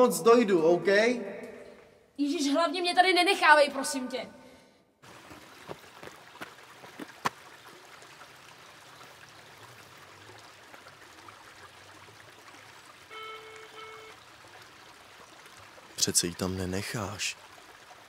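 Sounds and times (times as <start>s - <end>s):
stream running: 5.0s - 18.0s
phone electronic tone: 13.1s - 14.2s.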